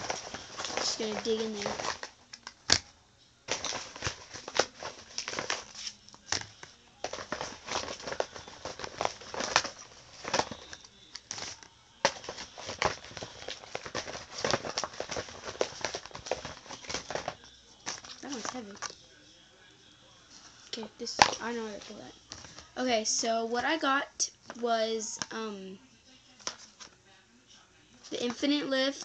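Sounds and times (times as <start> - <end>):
packaging crinkling and rustling: 0.0 - 2.9, 3.5 - 19.0, 21.1 - 22.7.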